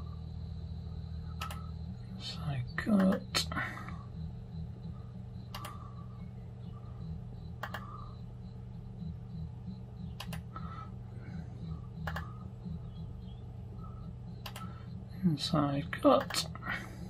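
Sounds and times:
steady low hum: 0.0 - 17.0
computer mouse clicking: 1.4 - 1.7, 5.5 - 5.9, 7.5 - 8.1, 10.1 - 10.6, 12.0 - 13.0, 14.4 - 14.8, 16.1 - 16.6.

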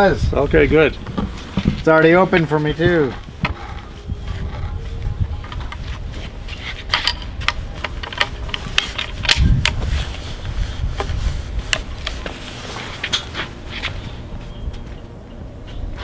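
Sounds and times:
low rumble: 2.6 - 6.2.

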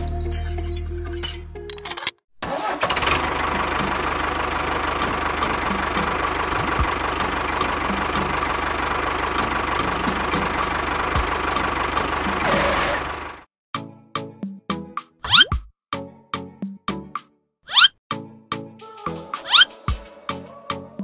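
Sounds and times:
diesel tractor engine knocking: 3.0 - 13.4.

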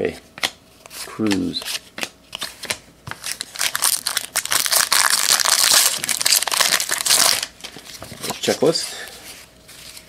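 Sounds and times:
foil wrapper crinkling: 3.2 - 8.5.

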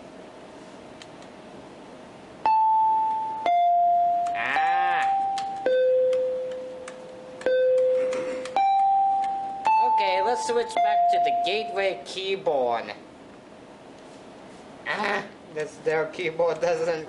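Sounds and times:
electronic chime tones: 2.5 - 6.8, 7.5 - 11.8
warbling bleat-like sound: 4.4 - 5.2.

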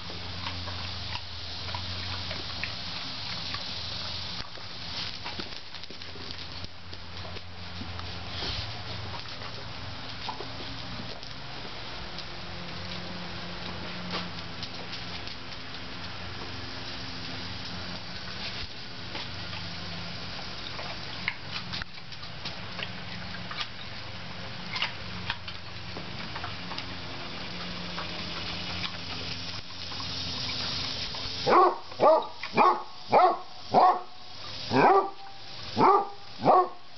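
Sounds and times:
dog barking: 31.4 - 36.8.

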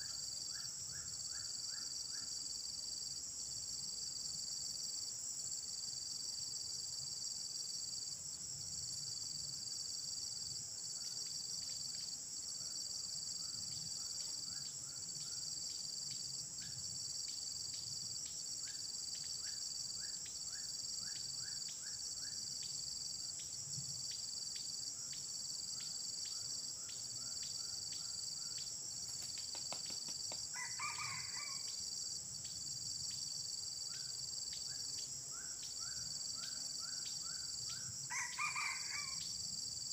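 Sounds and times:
insect drone: 0.0 - 39.9
rooster crowing: 30.6 - 31.7, 38.1 - 39.2.

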